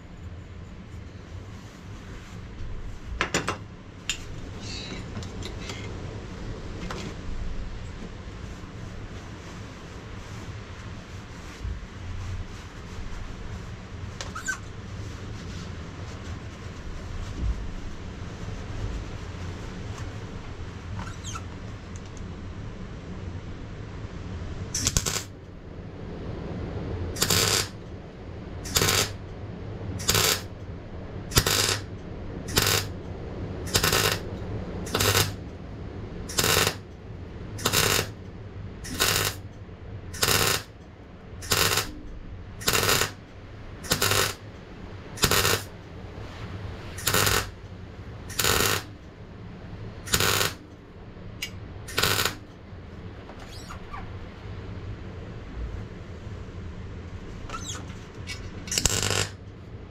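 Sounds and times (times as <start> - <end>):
low hum: 0.0 - 59.9
arc welding crackling: 24.7 - 25.5, 27.1 - 28.0, 28.6 - 29.3, 30.0 - 30.7, 31.3 - 35.5, 36.2 - 37.0, 37.6 - 38.2, 38.8 - 40.8, 41.4 - 45.9, 46.9 - 49.0, 50.0 - 50.7, 51.4 - 52.5, 57.6 - 59.5.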